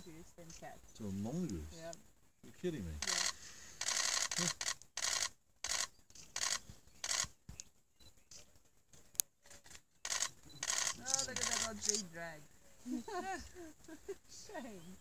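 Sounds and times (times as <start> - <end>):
camera shutters firing: 3.0 - 7.3, 9.7 - 12.0.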